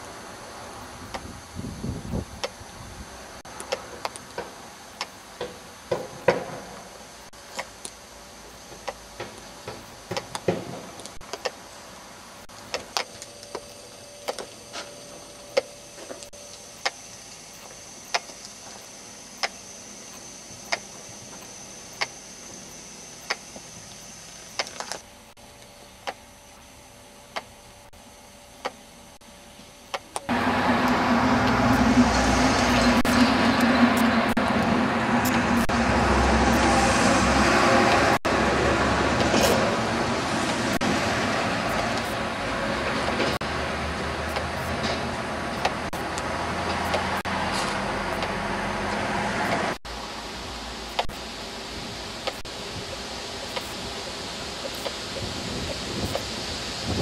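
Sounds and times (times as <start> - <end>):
faint high steady whine: 0.0 - 57.0.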